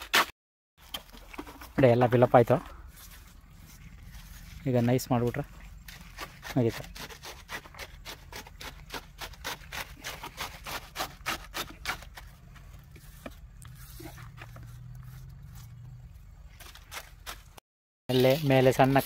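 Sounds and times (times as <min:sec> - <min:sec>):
trowel scraping wet concrete: 0:05.6 - 0:15.7.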